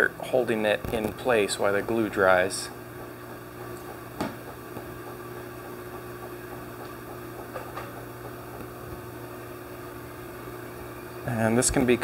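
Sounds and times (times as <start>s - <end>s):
low mechanical hum: 0.0s - 12.0s
knocks of wooden board: 3.0s - 8.6s.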